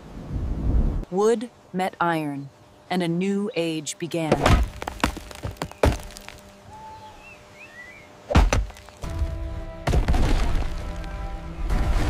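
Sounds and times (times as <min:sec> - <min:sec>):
axe thudding into tree trunk: 0:04.3 - 0:06.4, 0:08.3 - 0:10.9.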